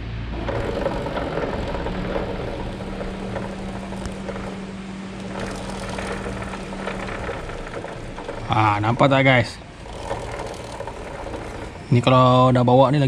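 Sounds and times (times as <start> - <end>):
steady hum: 0.0 - 12.4
motorcycle engine running: 0.2 - 12.2
drive chain clattering: 0.3 - 12.5.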